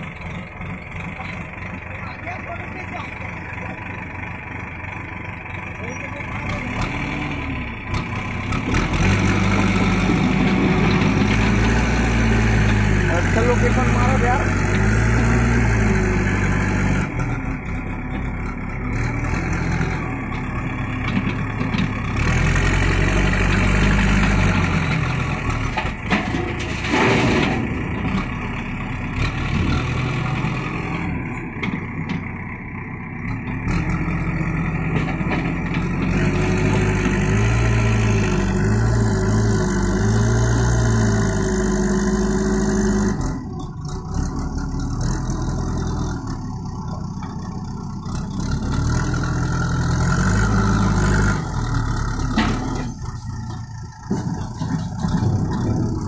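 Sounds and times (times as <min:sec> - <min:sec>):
diesel engine revving: 0:00.0 - 0:56.0.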